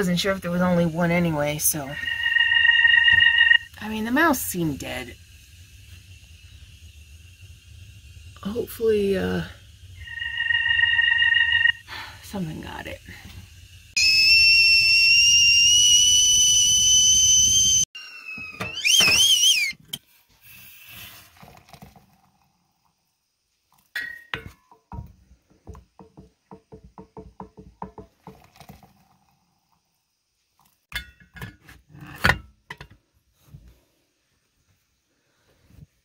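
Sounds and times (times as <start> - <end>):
kettle whistling: 0.0 - 19.8
hot water pouring into steel mug: 20.9 - 22.5, 27.9 - 29.4.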